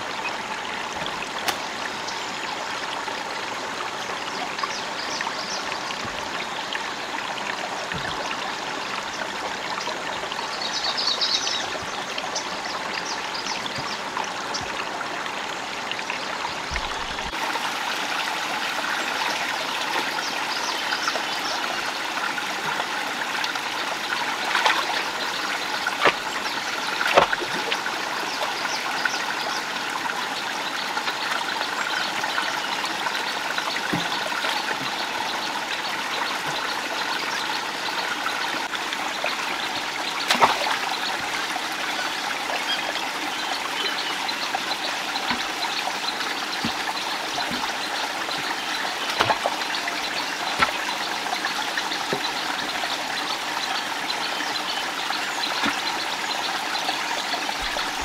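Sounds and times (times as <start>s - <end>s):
stream running over rocks: 0.0s - 58.0s
splashes of wading: 22.5s - 28.6s, 32.9s - 36.8s, 40.2s - 41.4s, 43.6s - 53.3s.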